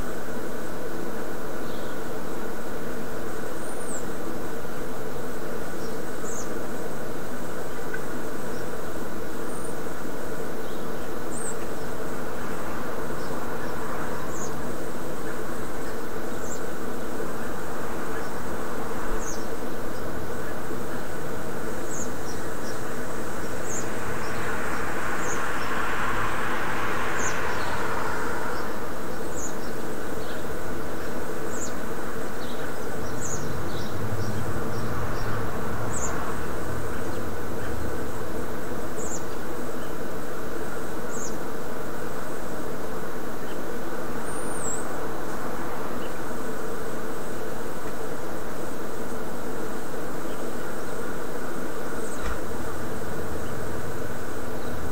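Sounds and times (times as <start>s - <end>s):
constant buzzing hum: 0.0s - 54.9s.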